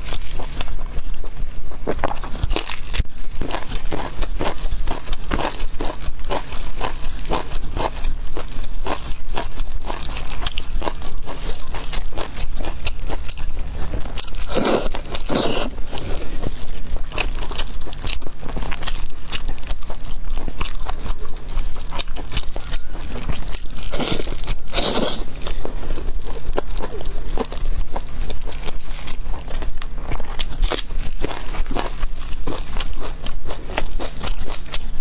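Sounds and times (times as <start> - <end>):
person biting and chewing food: 0.0 - 35.0.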